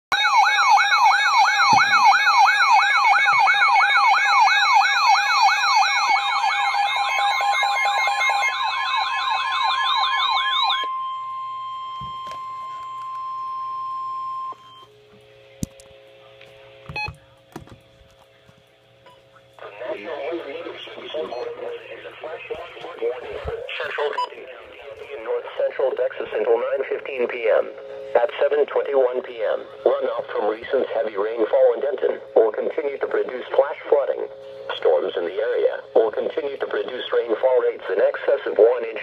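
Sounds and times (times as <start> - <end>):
warbling alert siren: 0.1 - 14.9.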